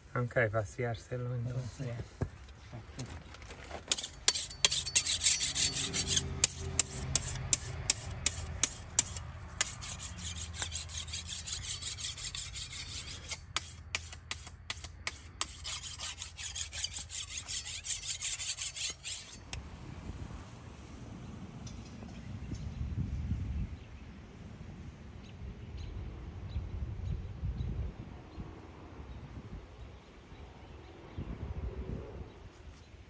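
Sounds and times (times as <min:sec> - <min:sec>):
metal file rasping on blade: 0:03.9 - 0:19.6.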